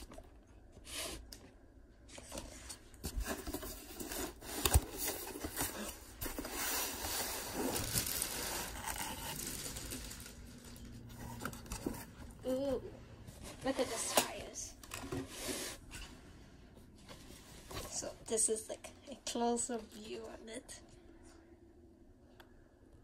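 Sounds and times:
cardboard rustling and scraping: 0:02.1 - 0:12.6, 0:13.3 - 0:16.2.

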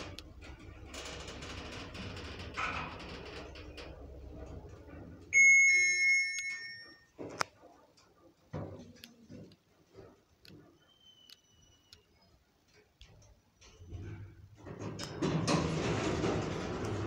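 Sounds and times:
short high beep: 0:05.4 - 0:07.0
lift arrival chime: 0:05.4 - 0:07.2
lift mechanism knocks and clicks: 0:13.8 - 0:17.0.

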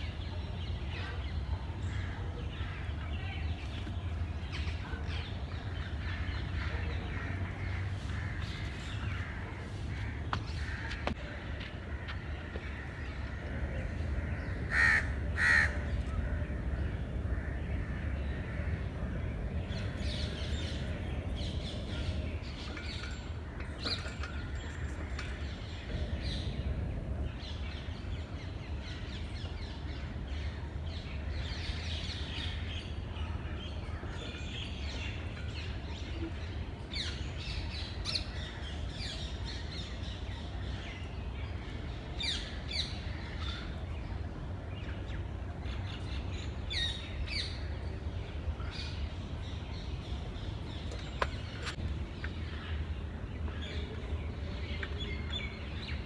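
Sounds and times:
birds calling: 0:00.0 - 0:56.0.

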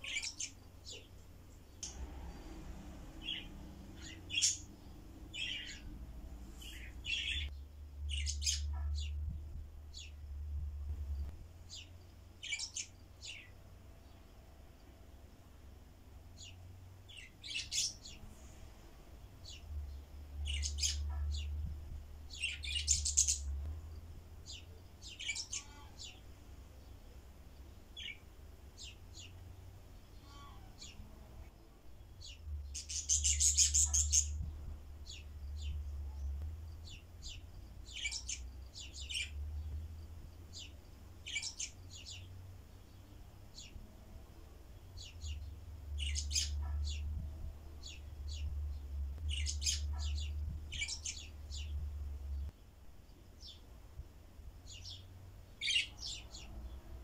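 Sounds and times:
rapid bird chatter: 0:00.0 - 0:02.5, 0:03.2 - 0:05.9, 0:06.6 - 0:07.5, 0:32.2 - 0:34.4, 0:40.5 - 0:42.3, 0:45.0 - 0:47.1, 0:47.8 - 0:51.8
budgerigars chirping: 0:03.2 - 0:04.7, 0:05.3 - 0:05.8, 0:32.2 - 0:34.4, 0:49.3 - 0:51.7.

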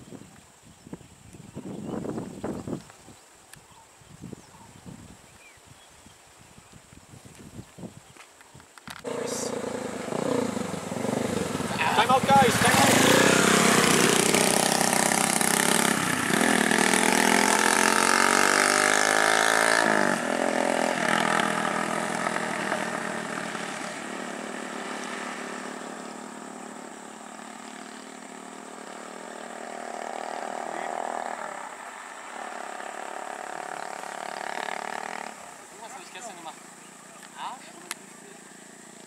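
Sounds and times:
motorcycle engines revving past: 0:09.0 - 0:39.0.

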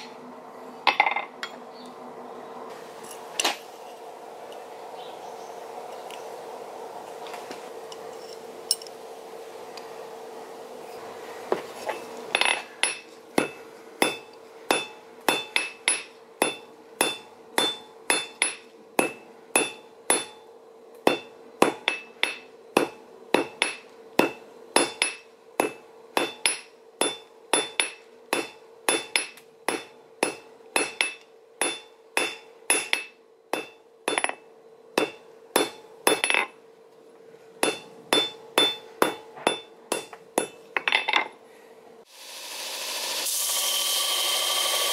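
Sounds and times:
steady hum: 0:00.0 - 0:43.3
hammer striking metal on anvil: 0:12.4 - 0:34.4, 0:35.0 - 0:36.6, 0:37.6 - 0:41.3.

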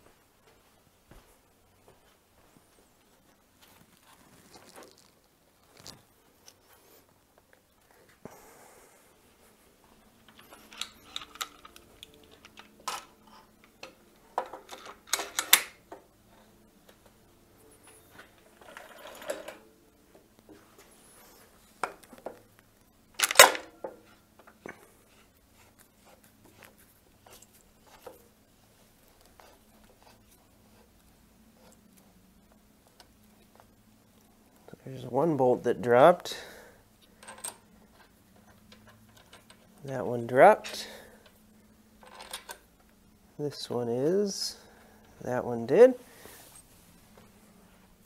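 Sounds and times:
metal clinks and scraping: 0:10.3 - 0:13.5, 0:17.9 - 0:19.6.

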